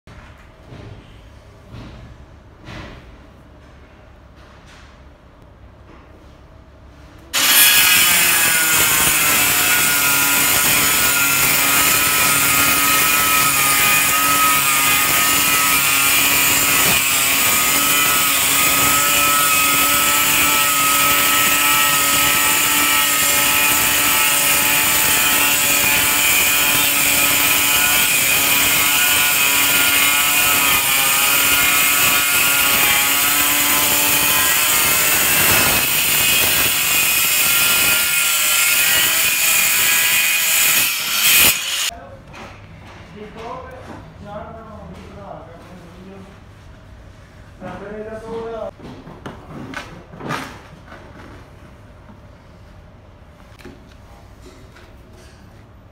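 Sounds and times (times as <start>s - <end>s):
angle grinder cutting tile: 7.4s - 41.9s.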